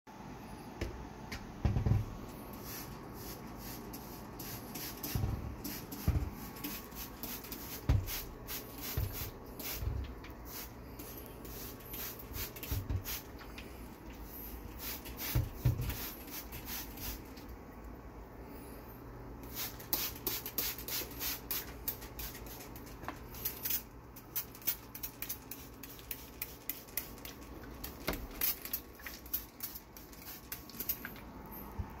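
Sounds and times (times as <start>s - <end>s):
spray bottle spritzing: 19.5s - 22.8s, 24.4s - 31.0s.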